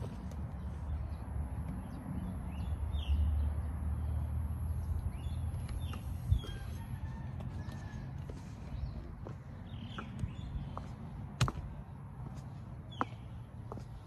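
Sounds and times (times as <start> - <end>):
walking footsteps: 5.9 - 14.0
bird chirps: 8.7 - 11.0, 12.9 - 13.8.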